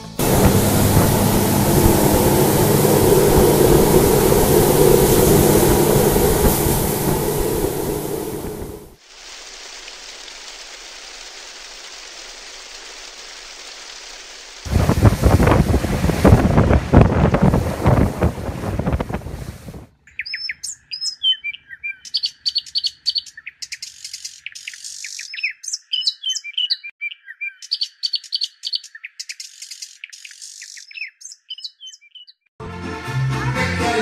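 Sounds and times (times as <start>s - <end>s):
birds chirping: 0.0s - 9.0s, 20.0s - 32.5s
wind and water rushing on microphone: 0.2s - 9.0s, 14.6s - 19.9s.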